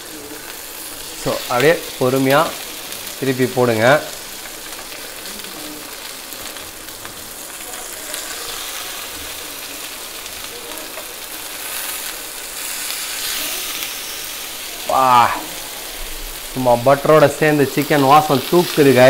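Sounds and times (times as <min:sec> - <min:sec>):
patties sizzling in butter: 0:00.0 - 0:19.0
tongs turning food: 0:07.8 - 0:16.1.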